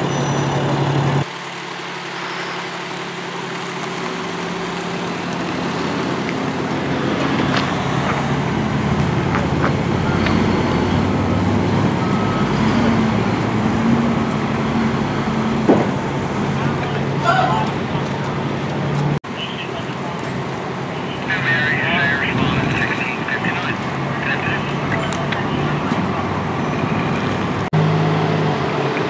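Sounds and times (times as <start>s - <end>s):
truck engine idling: 0.0s - 27.7s
passing trucks: 0.0s - 29.0s.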